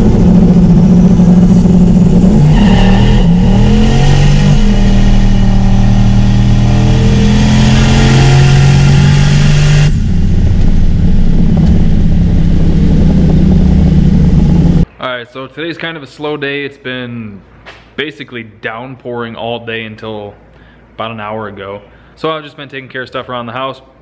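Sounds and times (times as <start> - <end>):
car engine running: 0.0 - 14.9
road and wind noise: 0.0 - 14.9.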